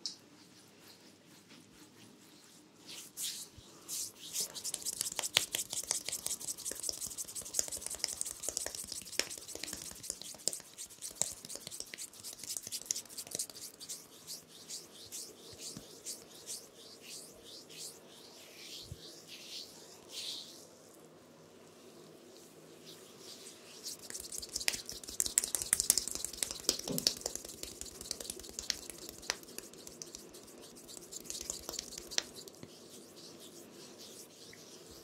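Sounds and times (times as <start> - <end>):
hands rubbing face and hair: 0.0 - 35.0
crisp brushing and rustling: 21.6 - 35.0.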